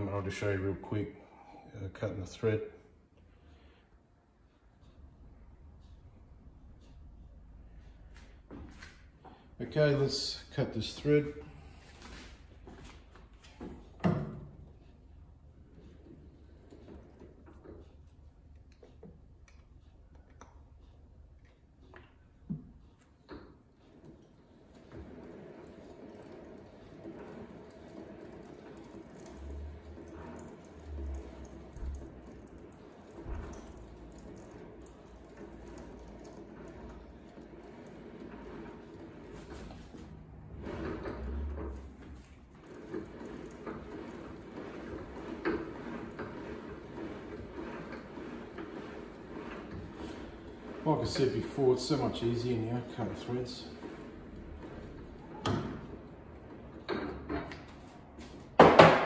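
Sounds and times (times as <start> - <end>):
metal lathe running: 23.9 - 57.5
metal lathe clicks and ticks: 24.0 - 39.5.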